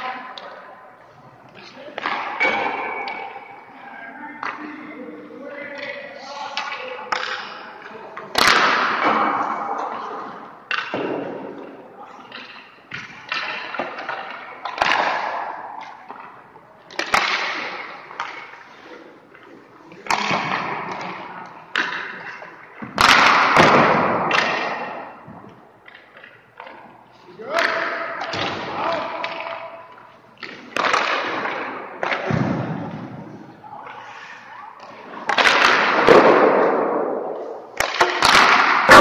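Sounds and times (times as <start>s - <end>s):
puck shots: 1.5s - 3.7s, 4.3s - 5.0s, 5.6s - 26.9s, 27.5s - 39.0s.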